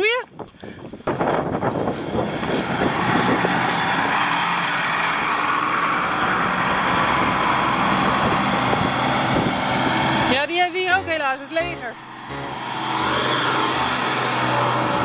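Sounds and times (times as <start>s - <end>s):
trucks driving past: 1.5s - 15.0s.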